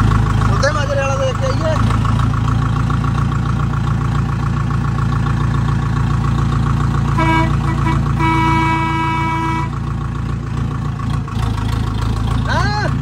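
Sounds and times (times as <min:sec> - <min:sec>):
tractor diesel engine running: 0:00.0 - 0:13.0
horn blasts: 0:07.1 - 0:09.8.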